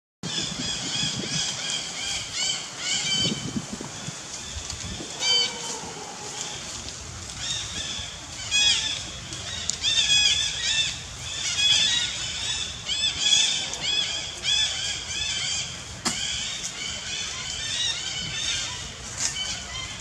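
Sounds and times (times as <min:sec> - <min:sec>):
monkey screaming: 0:05.0 - 0:06.7.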